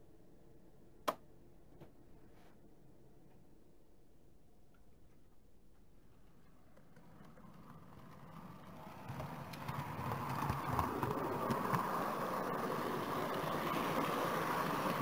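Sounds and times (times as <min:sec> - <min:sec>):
model train wheels clattering: 0:06.2 - 0:15.0.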